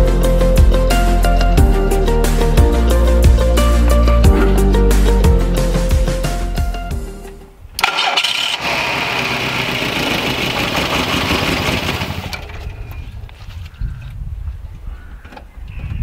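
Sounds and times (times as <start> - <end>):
car engine starting and idling: 7.2 - 13.0.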